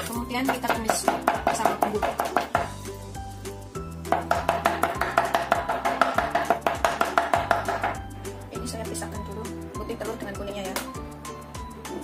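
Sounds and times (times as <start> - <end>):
background music: 0.0 - 12.0
meat cleaver chopping on wooden board: 0.5 - 2.7, 4.1 - 8.0.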